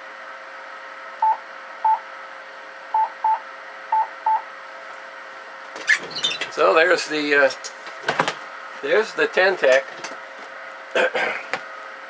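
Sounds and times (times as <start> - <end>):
cooling blower whirring: 0.0 - 12.0
short morse code beeps: 3.0 - 4.4.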